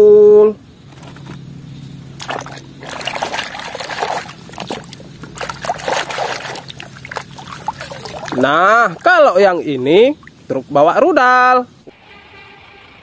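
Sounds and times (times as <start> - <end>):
water dripping: 2.2 - 10.7
water splashing in a basin: 2.2 - 10.8.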